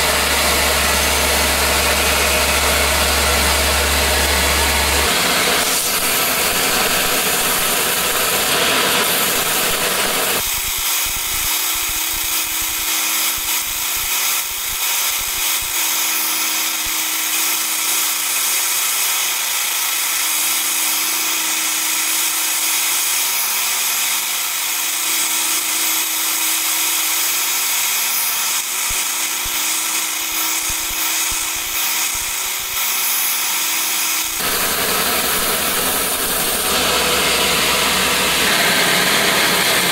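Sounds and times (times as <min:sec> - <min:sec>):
wood sanding hiss: 0:00.0 - 0:11.0, 0:26.9 - 0:39.9
belt grinder humming: 0:00.0 - 0:15.4, 0:25.9 - 0:39.9.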